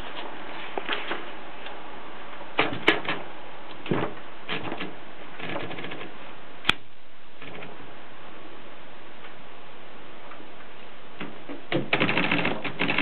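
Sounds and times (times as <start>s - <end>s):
typewriter carriage clicking: 11.8s - 13.0s.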